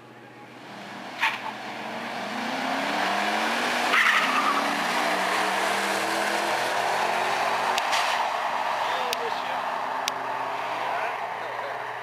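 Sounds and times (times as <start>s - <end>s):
car engines at full throttle: 0.0s - 12.0s
tyre squeal: 3.9s - 4.8s.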